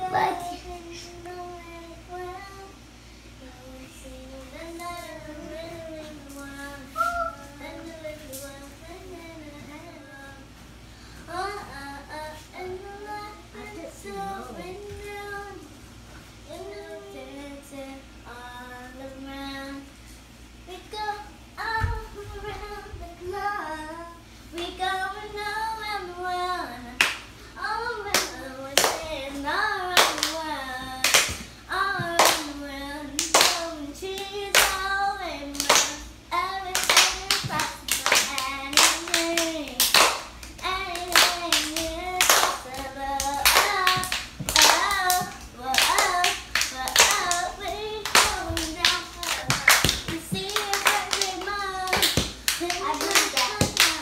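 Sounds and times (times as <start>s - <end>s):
girl singing: 0.0s - 10.6s, 11.3s - 15.8s, 16.4s - 19.9s, 20.6s - 54.0s
hand claps: 28.1s - 29.1s, 30.0s - 30.4s, 31.0s - 32.5s, 33.2s - 33.6s, 34.5s - 34.8s, 35.6s - 36.0s, 36.8s - 54.0s.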